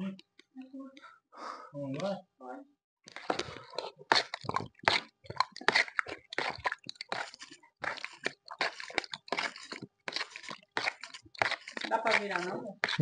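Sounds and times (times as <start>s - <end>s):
wet chewing and slurping: 3.1s - 13.0s.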